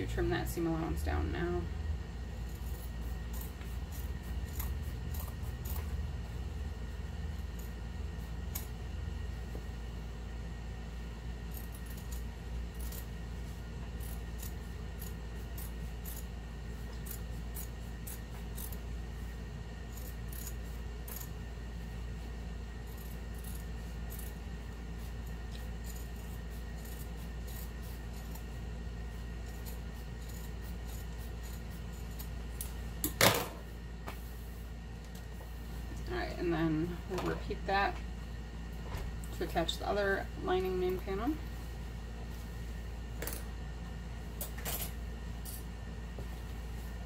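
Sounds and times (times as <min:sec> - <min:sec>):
steady low hum: 0:00.0 - 0:47.0
scissors snipping fabric: 0:02.5 - 0:06.0, 0:11.4 - 0:13.2, 0:13.9 - 0:18.8, 0:19.9 - 0:21.4, 0:22.8 - 0:24.4, 0:25.0 - 0:28.6, 0:29.3 - 0:33.2.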